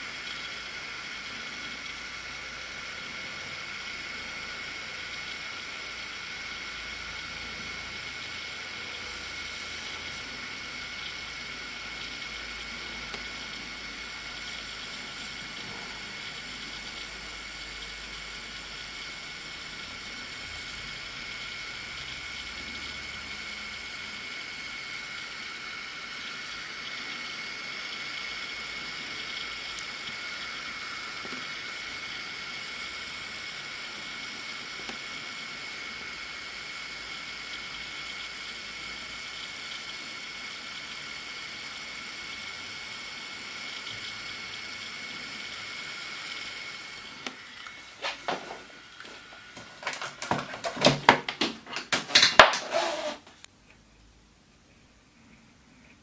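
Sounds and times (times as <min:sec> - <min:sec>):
hot air gun hissing: 0:00.0 - 0:51.0, 0:52.1 - 0:53.3
sharp clicks and knocks: 0:49.6 - 0:53.1.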